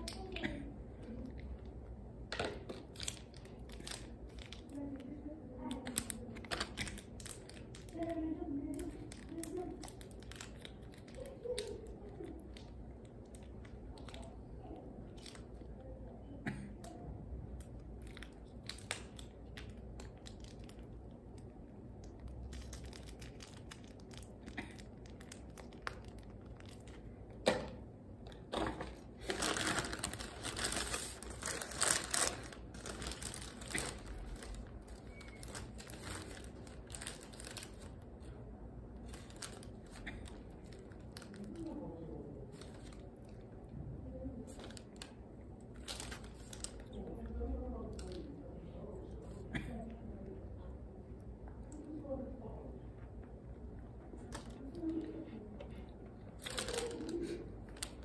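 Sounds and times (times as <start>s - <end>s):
plastic sachets tearing: 2.6s - 15.7s, 17.6s - 21.5s, 22.1s - 27.3s, 29.0s - 38.2s, 39.0s - 43.4s, 44.5s - 47.1s, 56.3s - 58.0s
paper wrapper crinkling: 2.6s - 16.0s, 17.6s - 27.4s, 28.8s - 43.5s, 44.4s - 48.3s, 56.3s - 58.0s.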